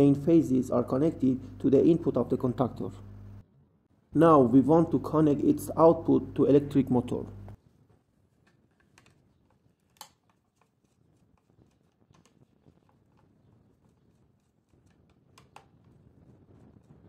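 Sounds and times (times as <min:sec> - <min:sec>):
screwdriver clicks and taps: 0:08.4 - 0:10.7, 0:11.4 - 0:13.3, 0:14.8 - 0:15.9.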